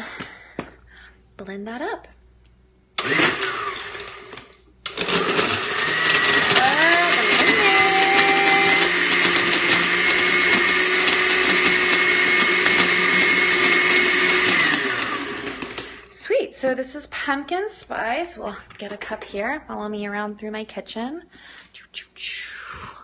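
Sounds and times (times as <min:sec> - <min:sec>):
blender crushing ice: 0:03.0 - 0:16.1.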